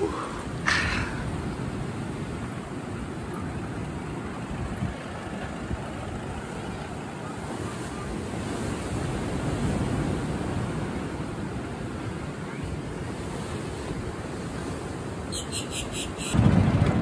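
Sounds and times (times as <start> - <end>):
surf washing: 0.0 - 17.0
wind on microphone: 7.4 - 17.0.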